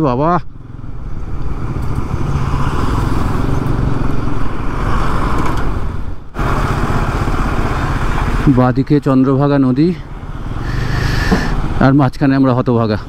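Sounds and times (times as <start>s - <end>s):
wind and road noise: 0.0s - 13.0s
motorcycle engine running: 0.5s - 4.3s, 5.8s - 8.6s.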